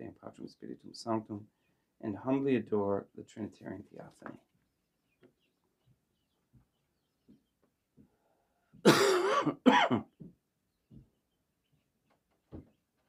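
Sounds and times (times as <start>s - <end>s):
man coughing and clearing throat: 8.8s - 10.2s.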